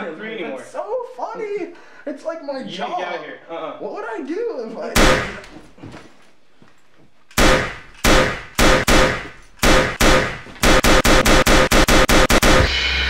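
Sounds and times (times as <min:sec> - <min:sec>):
pistol gunshots: 0:05.0 - 0:05.5, 0:07.3 - 0:12.7.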